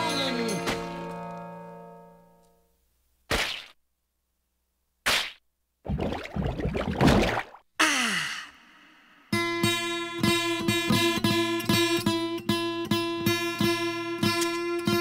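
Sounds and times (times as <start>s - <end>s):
acoustic guitar strumming: 9.3s - 15.0s.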